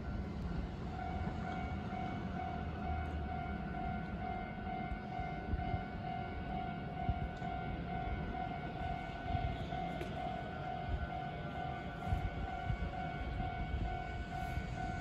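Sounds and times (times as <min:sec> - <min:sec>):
pulsing electronic warning tone: 0:00.0 - 0:15.0.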